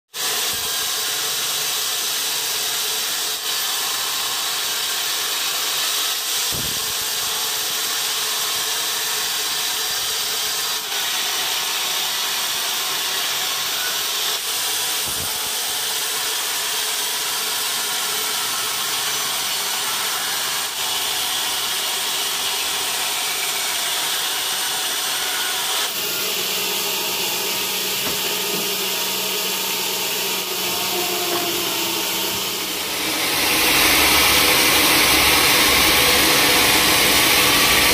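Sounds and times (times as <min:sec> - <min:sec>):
band saw cutting log: 0:00.2 - 0:37.9.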